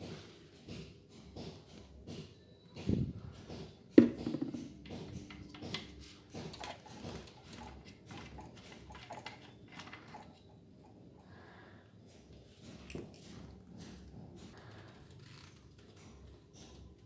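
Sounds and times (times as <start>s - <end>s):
plastic bottle knocking on tile floor: 4.0s - 5.9s.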